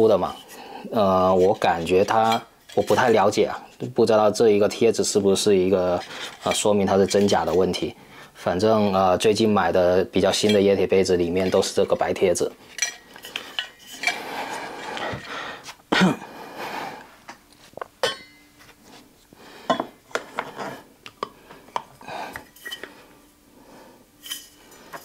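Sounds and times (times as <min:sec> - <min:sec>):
metal tumblers clinking and knocking: 0:01.2 - 0:03.4, 0:11.3 - 0:14.2.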